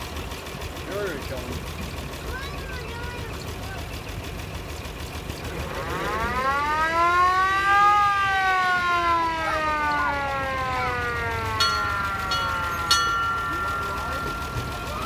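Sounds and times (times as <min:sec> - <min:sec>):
fire engine siren winding: 0:05.6 - 0:15.0.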